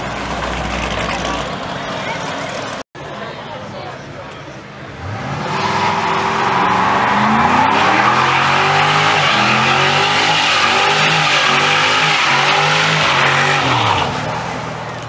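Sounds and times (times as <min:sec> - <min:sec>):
car engine at high revs: 0:04.9 - 0:15.0.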